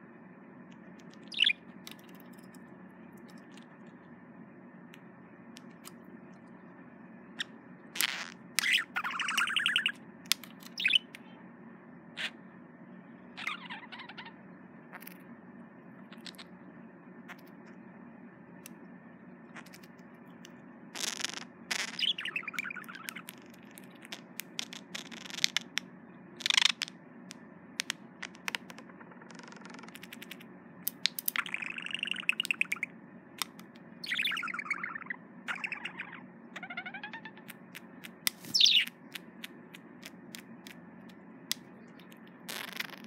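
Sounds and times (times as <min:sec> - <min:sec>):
sharp bird clicks: 0:01.0 - 0:02.3, 0:07.4 - 0:11.2, 0:21.7 - 0:25.8, 0:26.4 - 0:40.8
budgerigar chirping and warbling: 0:01.2 - 0:01.6, 0:08.0 - 0:10.0, 0:10.6 - 0:11.1, 0:12.2 - 0:12.4, 0:13.4 - 0:14.4, 0:21.0 - 0:25.6, 0:26.4 - 0:26.8, 0:31.4 - 0:39.0.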